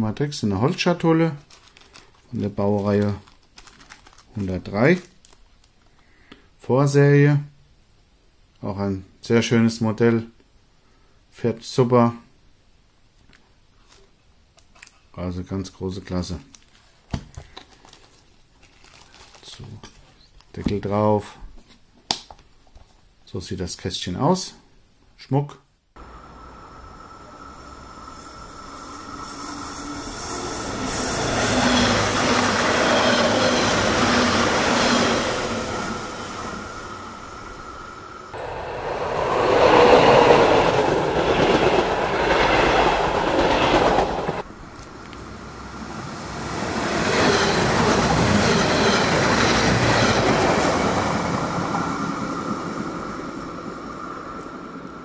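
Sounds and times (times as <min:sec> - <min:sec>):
model trains running on track: 0:26.0 - 0:44.5, 0:45.2 - 0:55.0.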